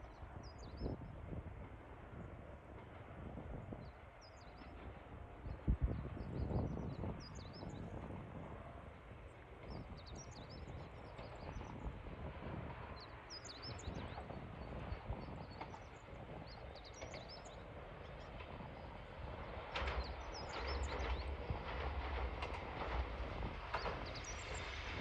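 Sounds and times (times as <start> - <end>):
approaching electric train: 0.0 - 25.0
small birds chirping: 23.7 - 24.8.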